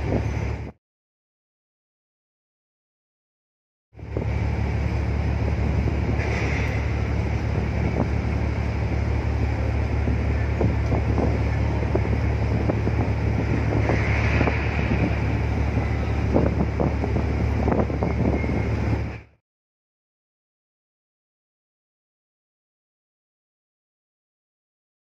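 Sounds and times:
ship engines rumbling: 0:00.0 - 0:00.8, 0:04.0 - 0:19.4
wind buffeting microphone: 0:00.0 - 0:00.8, 0:04.0 - 0:19.3.

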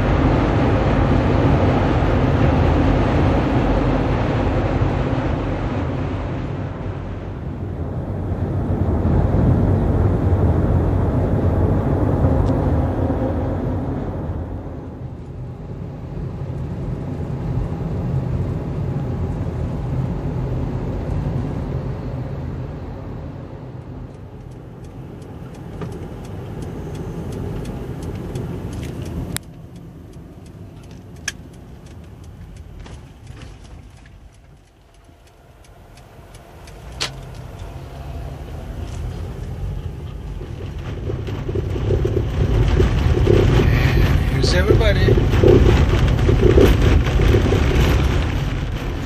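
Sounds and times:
car engine and tyre rumble: 0:00.0 - 0:49.0
sharp clicks: 0:24.4 - 0:37.8.

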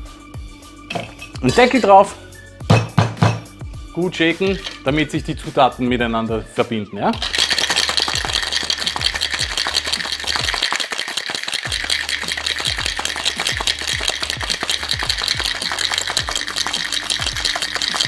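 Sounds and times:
music with steady low beat: 0:00.0 - 0:06.6, 0:07.2 - 0:10.6, 0:11.7 - 0:18.0
ice rattling in cocktail shaker: 0:04.6 - 0:04.9, 0:07.2 - 0:18.0.

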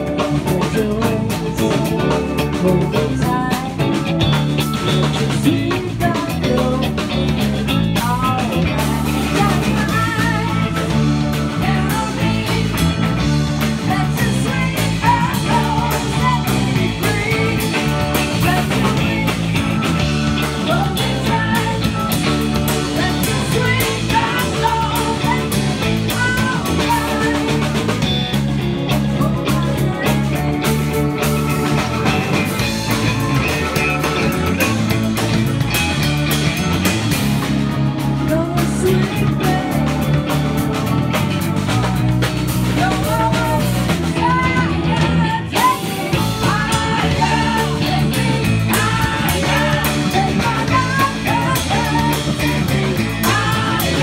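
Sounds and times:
man singing: 0:00.0 - 0:04.0, 0:05.1 - 0:10.7
woman singing: 0:00.0 - 0:04.1, 0:05.1 - 0:27.9, 0:28.9 - 0:30.8, 0:38.2 - 0:40.2, 0:41.7 - 0:54.0
drum kit: 0:00.0 - 0:54.0
electric bass: 0:00.0 - 0:54.0
electric guitars: 0:00.0 - 0:54.0.

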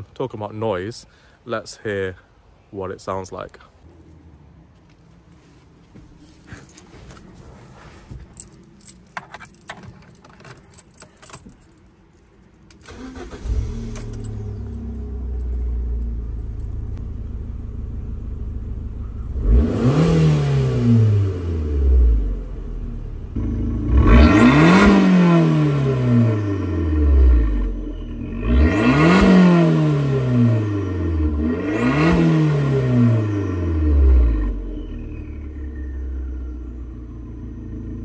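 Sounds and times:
car engine starting and idling: 0:05.0 - 0:38.0
key rattles and clicks: 0:08.2 - 0:12.7
car engine revving: 0:12.9 - 0:38.0.

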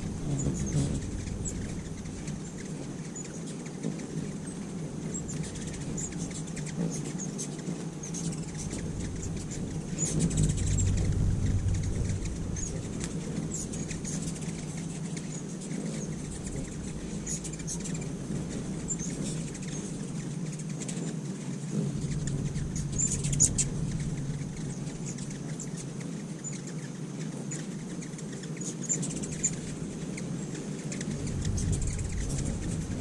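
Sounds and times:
low rumble: 0:00.0 - 0:06.6, 0:07.9 - 0:20.6, 0:21.8 - 0:26.0, 0:29.2 - 0:30.1, 0:31.0 - 0:33.0
hummingbirds chipping and twittering: 0:00.0 - 0:33.0
steady low hum: 0:00.0 - 0:33.0.

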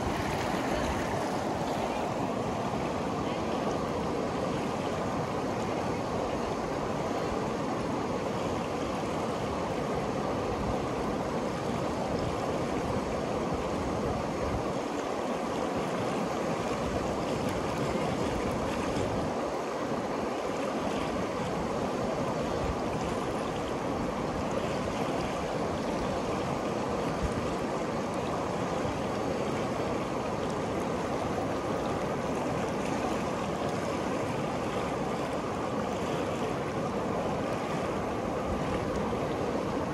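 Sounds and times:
river water rushing: 0:00.0 - 0:39.9.

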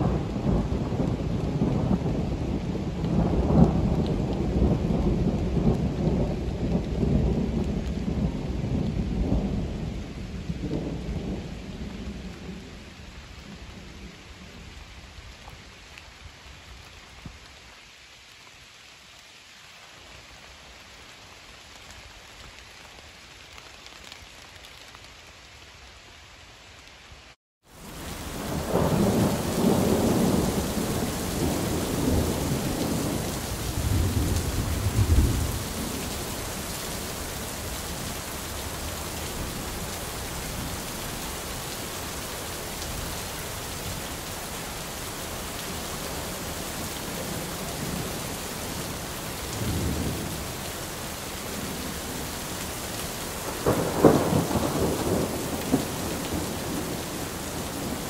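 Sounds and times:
rain hissing: 0:00.0 - 0:58.0
thunder rumbling: 0:27.9 - 0:58.0.

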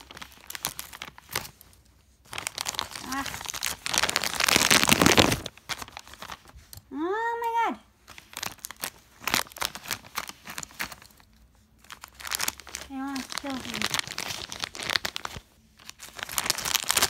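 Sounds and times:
plastic bag crinkling: 0:00.0 - 0:06.7, 0:08.0 - 0:17.0.

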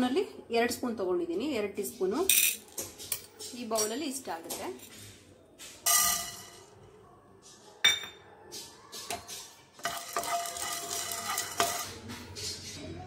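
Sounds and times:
scraping in a pan: 0:09.0 - 0:13.0
peppercorns rattling in a pan: 0:09.8 - 0:12.0.

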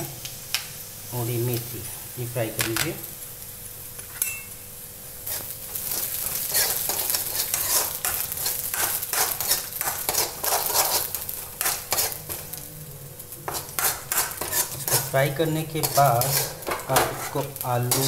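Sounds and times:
seeds sizzling in hot oil: 0:00.0 - 0:18.0
scraping strokes on metal pan: 0:05.3 - 0:12.5, 0:13.5 - 0:18.0.

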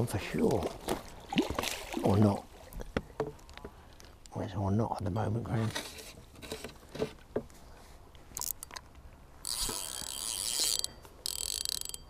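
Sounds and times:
fishing reel clicks: 0:08.4 - 0:08.8, 0:09.4 - 0:12.0
fishing reel drag ratcheting: 0:08.4 - 0:08.8, 0:09.4 - 0:12.0.

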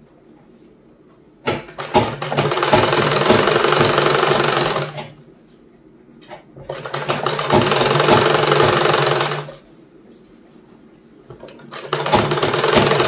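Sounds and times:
sewing machine knocks: 0:01.5 - 0:05.1, 0:06.6 - 0:09.5, 0:11.3 - 0:13.0
sewing machine stitching: 0:01.5 - 0:05.2, 0:06.7 - 0:09.6, 0:11.4 - 0:13.0.

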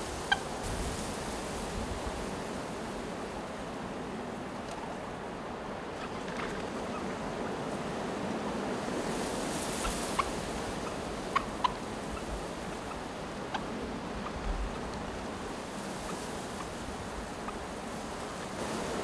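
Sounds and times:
wind hiss: 0:00.0 - 0:06.0, 0:06.6 - 0:19.0
turkeys clucking: 0:00.3 - 0:00.5, 0:09.8 - 0:15.1.

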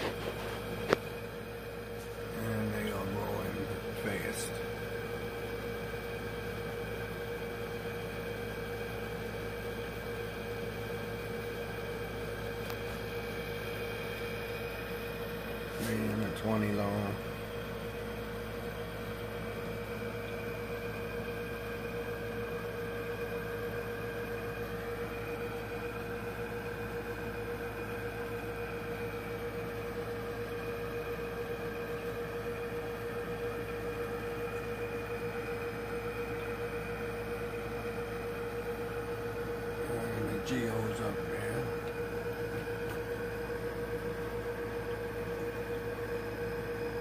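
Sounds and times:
aquarium air pump humming: 0:00.0 - 0:47.0.

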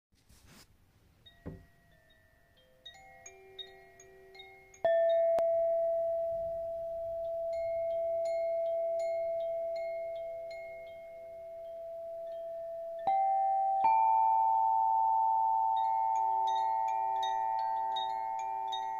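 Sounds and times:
soft high crystal chimes: 0:01.2 - 0:18.9
sustained crystal ringing tone: 0:01.8 - 0:18.9
light high pings: 0:04.8 - 0:10.2.

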